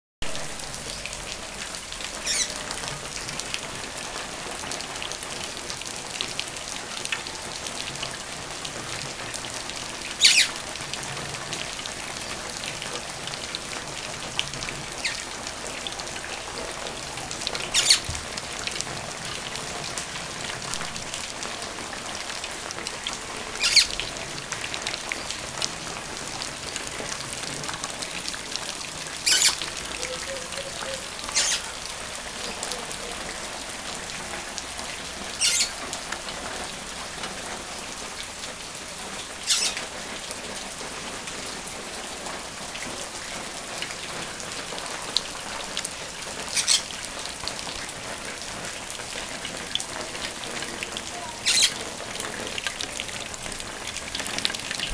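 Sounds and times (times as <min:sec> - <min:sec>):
rain on concrete: 0:00.2 - 0:54.9.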